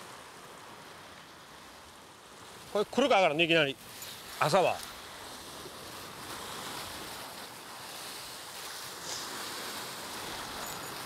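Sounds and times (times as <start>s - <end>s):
surf washing against rocks: 0.0s - 11.0s
wind: 0.0s - 11.0s.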